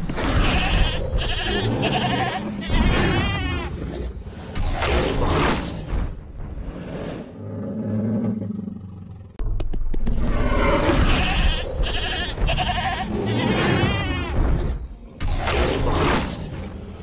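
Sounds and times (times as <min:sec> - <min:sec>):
goat bleating: 0:00.4 - 0:03.7, 0:11.0 - 0:14.4.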